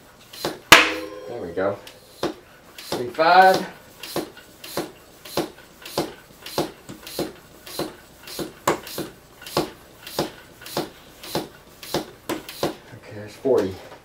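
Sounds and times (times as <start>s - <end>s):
floor pump strokes: 2.0s - 12.9s.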